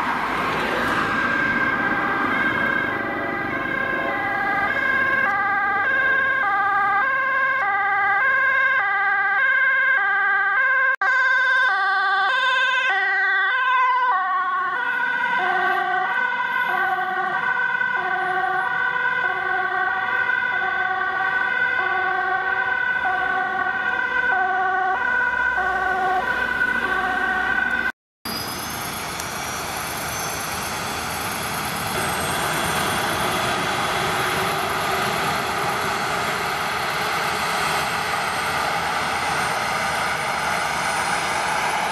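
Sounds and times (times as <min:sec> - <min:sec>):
ambulance two-tone siren: 0:00.0 - 0:41.9
helicopter roar: 0:01.0 - 0:06.9, 0:28.3 - 0:41.9.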